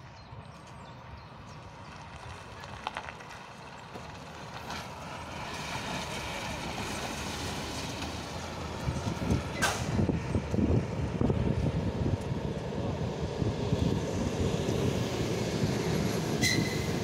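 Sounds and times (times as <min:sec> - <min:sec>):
tyres on gravel: 0:00.4 - 0:10.8
minibus engine driving past: 0:00.7 - 0:17.0
wind buffeting microphone: 0:06.8 - 0:17.0.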